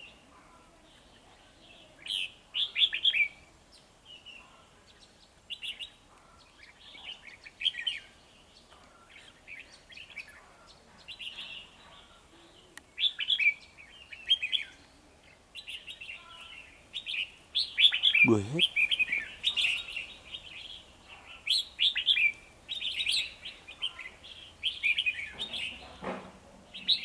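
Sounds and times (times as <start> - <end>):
birds singing warbled phrases: 8.9 - 25.7.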